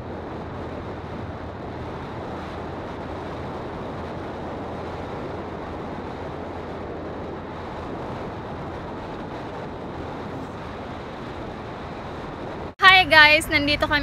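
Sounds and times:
motorcycle engine and road noise: 0:00.0 - 0:14.0
wind rushing over microphone: 0:00.0 - 0:14.0.

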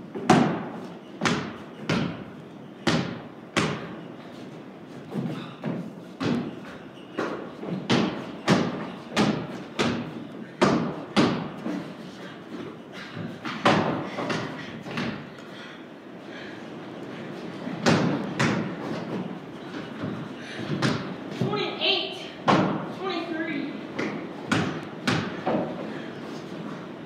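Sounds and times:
basketball bouncing on wooden floor: 0:00.2 - 0:02.2, 0:02.8 - 0:04.0, 0:05.2 - 0:11.6, 0:17.8 - 0:19.3, 0:20.0 - 0:21.6, 0:24.0 - 0:25.7.

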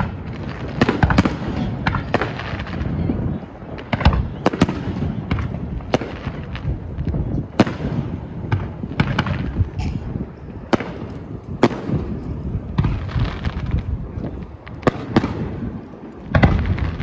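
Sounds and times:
steady low rumble: 0:01.4 - 0:17.0
firework shells bursting: 0:07.5 - 0:17.0.

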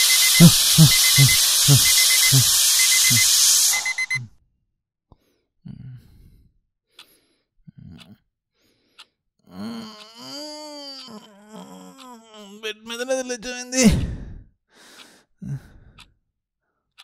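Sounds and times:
alarm clock ringing: 0:00.0 - 0:04.2
man groaning sleepily: 0:00.4 - 0:03.3, 0:05.6 - 0:06.4, 0:09.5 - 0:14.5, 0:15.4 - 0:16.0.

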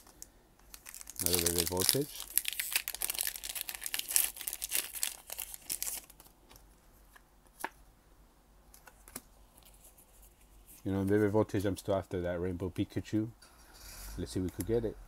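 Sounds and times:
foil wrapper tearing and crinkling: 0:00.0 - 0:06.3.

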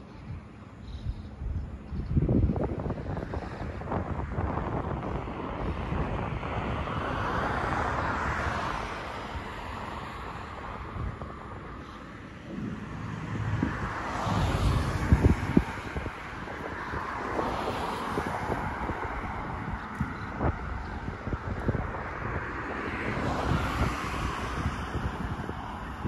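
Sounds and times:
road traffic: 0:00.0 - 0:26.0
wind gusting on microphone: 0:00.0 - 0:26.0
vehicle passing: 0:06.1 - 0:24.7.

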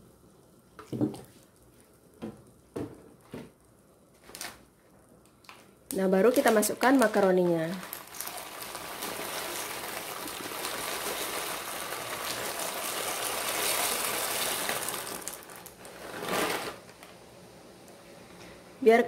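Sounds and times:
dry macaroni pouring into pot: 0:06.5 - 0:16.9.

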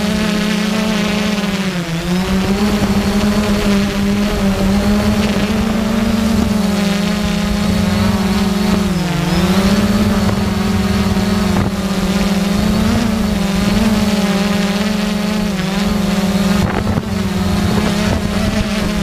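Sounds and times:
drone propellers buzzing: 0:00.0 - 0:19.0.

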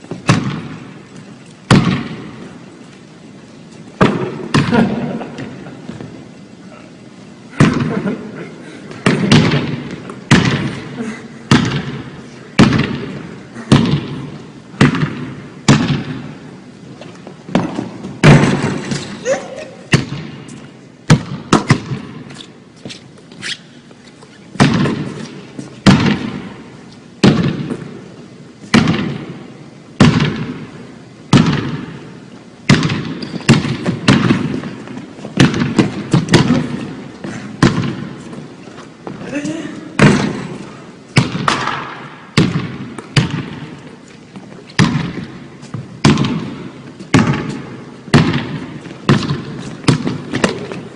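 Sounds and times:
basketball bouncing on hardwood floor: 0:09.1 - 0:10.6, 0:17.5 - 0:19.0, 0:32.7 - 0:38.0, 0:42.4 - 0:43.7, 0:44.8 - 0:50.8.

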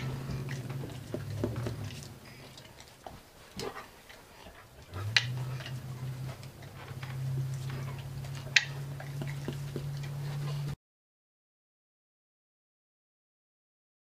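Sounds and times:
low steady hum: 0:00.0 - 0:10.8
puppy mouthing tin clicks: 0:08.4 - 0:10.0.

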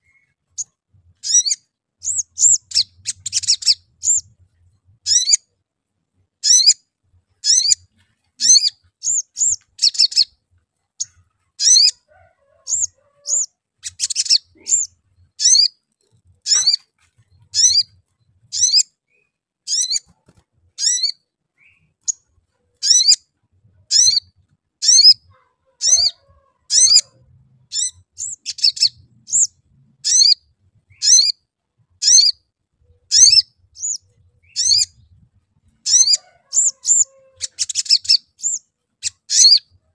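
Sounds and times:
sunbird high sharp chirps: 0:00.1 - 0:04.3, 0:06.4 - 0:06.8, 0:07.4 - 0:07.8, 0:08.4 - 0:10.4, 0:12.7 - 0:15.7, 0:16.5 - 0:16.9, 0:17.5 - 0:18.8, 0:22.8 - 0:23.2, 0:23.9 - 0:25.2, 0:27.7 - 0:29.5, 0:30.1 - 0:31.4, 0:33.1 - 0:35.0, 0:35.8 - 0:39.7.

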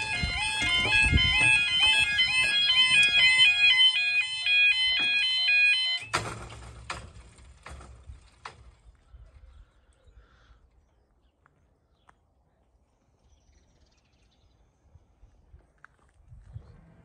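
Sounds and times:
level crossing warbling alarm: 0:00.0 - 0:06.3.

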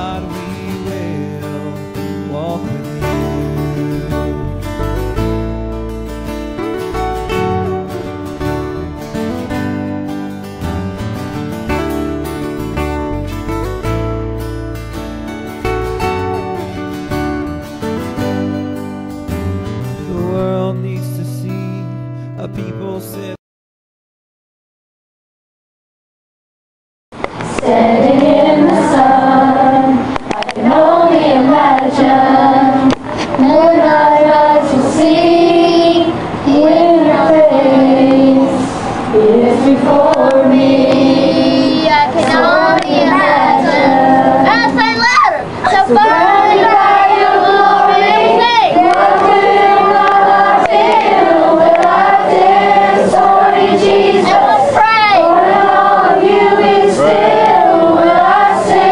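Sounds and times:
children singing together: 0:27.5 - 0:58.9.

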